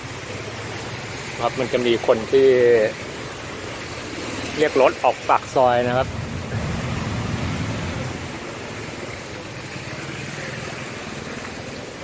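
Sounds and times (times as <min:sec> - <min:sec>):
vehicle engine rumble: 0:05.3 - 0:12.0.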